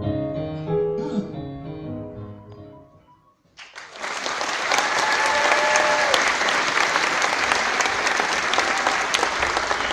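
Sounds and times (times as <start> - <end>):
audience clapping: 3.6 - 9.9
person cheering: 4.7 - 6.2.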